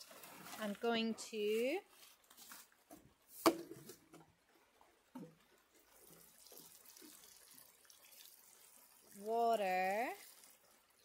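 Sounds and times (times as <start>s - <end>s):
water pouring onto compost: 0.0s - 2.6s, 5.3s - 11.0s.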